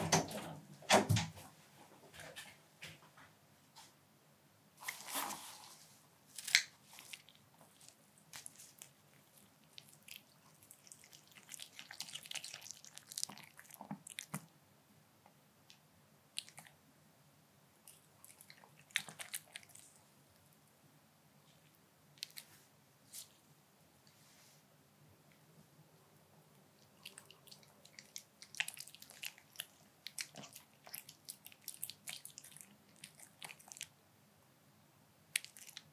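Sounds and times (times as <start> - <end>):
dog chewing and lip smacking: 6.9 - 14.5, 17.8 - 20.5, 26.8 - 33.9, 35.3 - 35.9.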